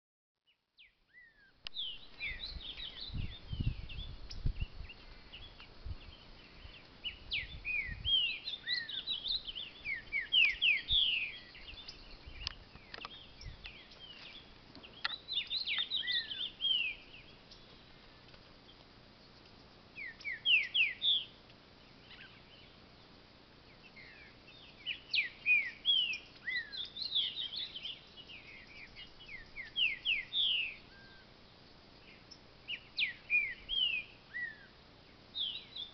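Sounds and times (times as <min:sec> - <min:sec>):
bird singing whistled notes: 0:00.5 - 0:17.9, 0:19.2 - 0:22.8, 0:23.7 - 0:31.3, 0:32.0 - 0:35.9
low wind rumble on microphone: 0:01.8 - 0:14.1.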